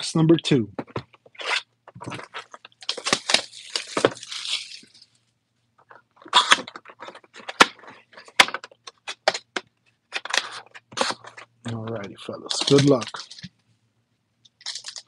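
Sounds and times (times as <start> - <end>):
plastic shrink wrap crinkling and tearing: 1.4 - 5.2, 5.8 - 9.4, 10.1 - 13.5, 14.5 - 15.0.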